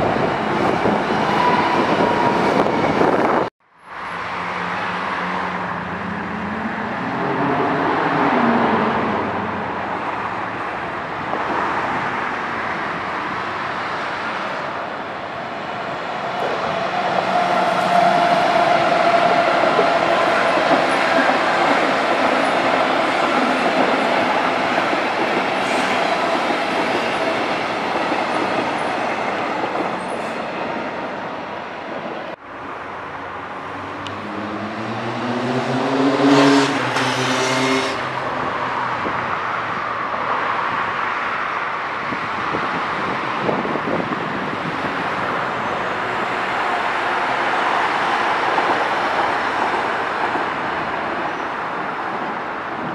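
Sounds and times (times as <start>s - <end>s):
electric train passing with whine: 0.0s - 31.9s.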